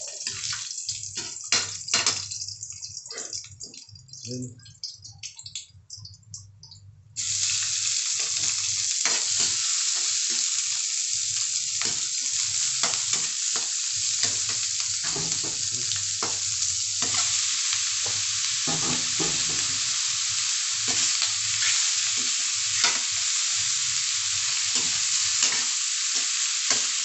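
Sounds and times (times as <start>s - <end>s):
food sizzling in wok: 0.0s - 3.5s, 7.2s - 27.0s
metal spatula clacking and scraping: 16.2s - 17.4s.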